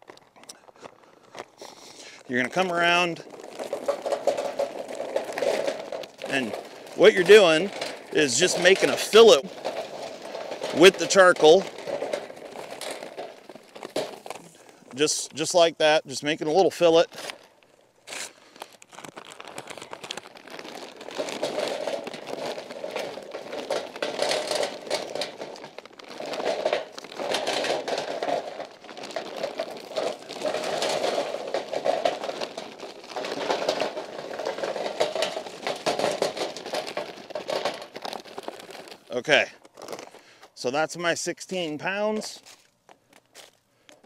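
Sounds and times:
paper bag crinkling: 0:00.0 - 0:15.6, 0:16.3 - 0:40.6
charcoal clattering onto pile: 0:01.8 - 0:15.6, 0:19.2 - 0:40.4.

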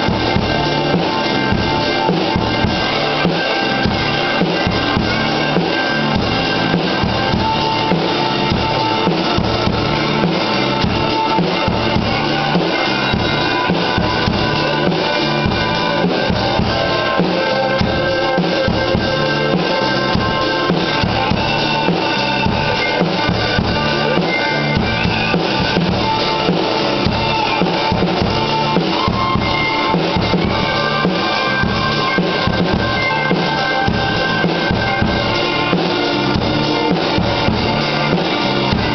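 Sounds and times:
drum kit rock groove: 0:00.0 - 0:38.9
recorded rock song: 0:00.0 - 0:38.9.

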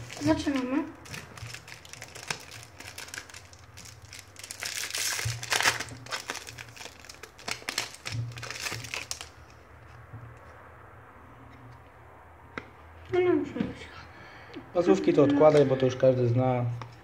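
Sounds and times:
foil packet tearing and crinkling: 0:00.0 - 0:09.4.

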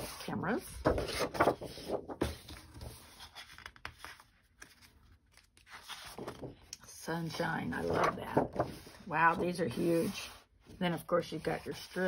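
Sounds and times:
paper sheets rustling and flapping: 0:00.1 - 0:06.7, 0:07.7 - 0:10.4.

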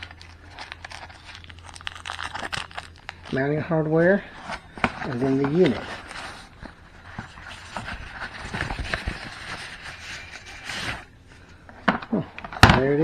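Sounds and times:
packing sheet rustling: 0:00.0 - 0:11.5.

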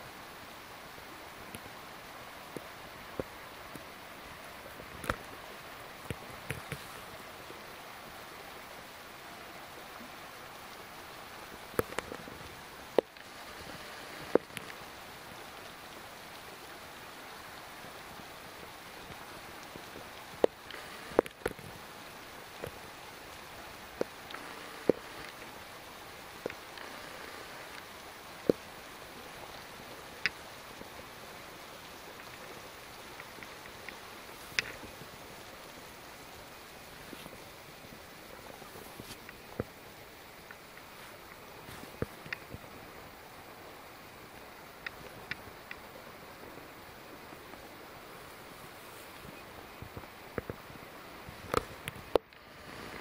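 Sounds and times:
faint outdoor hiss: 0:00.0 - 0:53.0
sharp irregular clicks: 0:20.4 - 0:21.7, 0:24.0 - 0:25.5.

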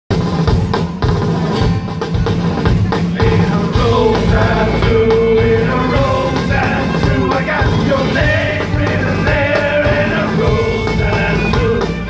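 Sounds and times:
drums: 0:00.0 - 0:12.0
electric guitars: 0:00.2 - 0:12.0
person singing: 0:03.1 - 0:12.0.

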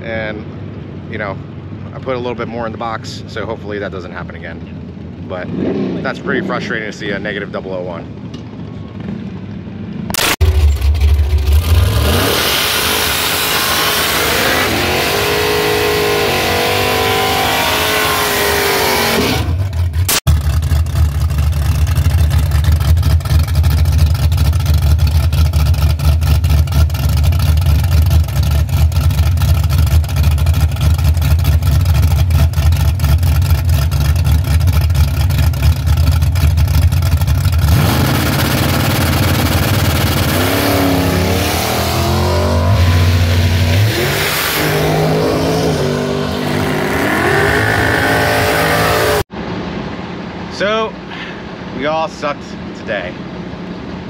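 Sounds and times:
car engine idling: 0:10.1 - 0:12.3, 0:19.4 - 0:51.8
car engine revving: 0:10.1 - 0:49.3.

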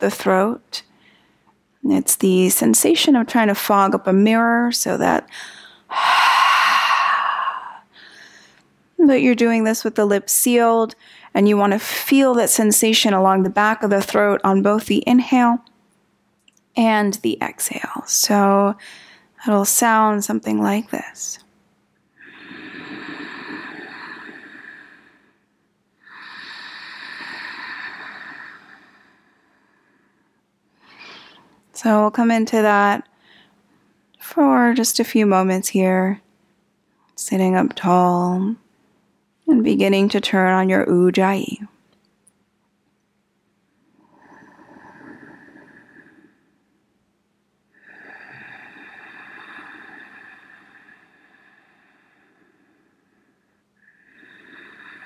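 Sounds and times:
woman breathing with throaty hiss: 0:05.3 - 0:08.7, 0:18.8 - 0:19.4, 0:22.1 - 0:31.6, 0:43.8 - 0:46.9, 0:47.7 - 0:55.0.

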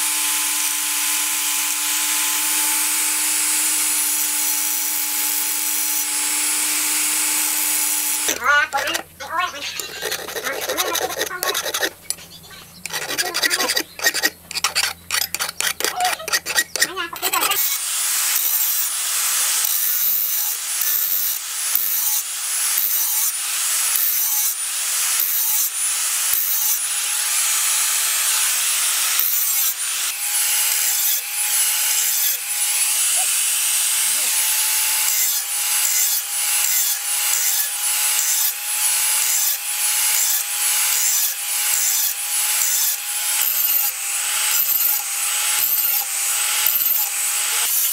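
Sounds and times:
angle grinder grinding: 0:00.0 - 0:47.9
hand tool scratching steel: 0:00.0 - 0:47.9.

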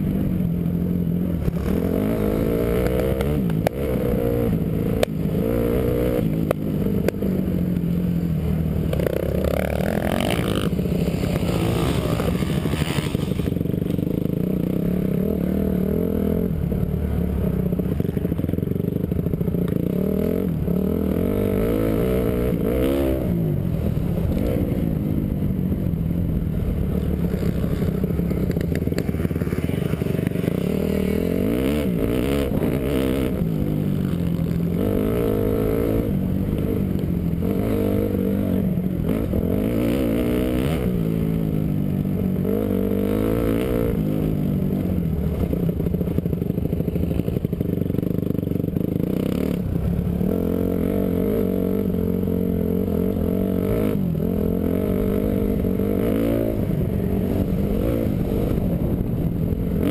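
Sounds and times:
motocross engine revving: 0:08.9 - 0:13.6.

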